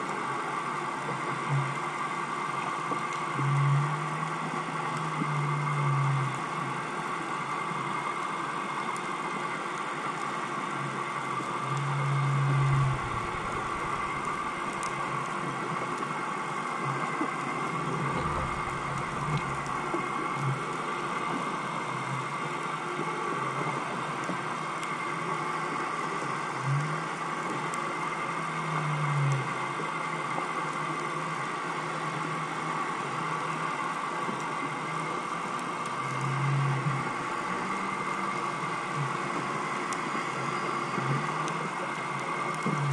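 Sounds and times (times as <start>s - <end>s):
underwater mechanical hum: 0.0s - 42.9s
low rumble: 12.3s - 15.3s, 18.0s - 20.6s
short low pulses: 12.4s - 15.0s, 18.1s - 20.1s.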